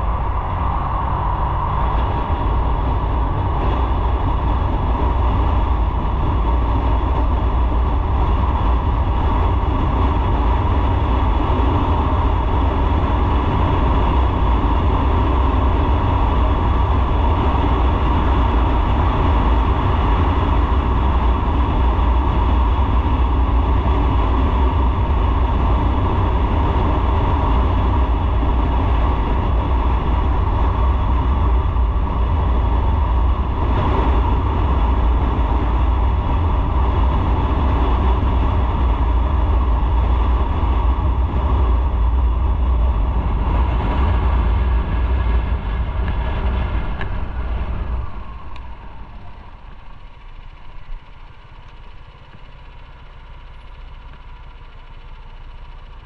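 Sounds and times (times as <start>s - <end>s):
wind rushing: 0.0s - 11.2s
motorcycle engine: 0.0s - 56.0s
road noise: 0.0s - 56.0s.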